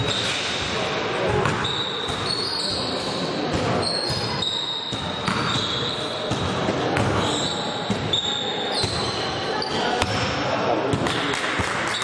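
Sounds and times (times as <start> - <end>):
sneakers squeaking on floor: 0.0 - 10.4
basketball bouncing: 4.9 - 5.7, 6.3 - 7.2.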